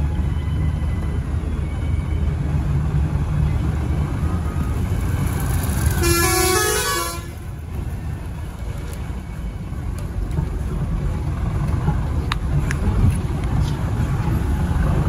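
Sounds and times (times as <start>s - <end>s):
engine and road rumble: 0.0s - 15.0s
vehicle horn: 5.9s - 7.4s.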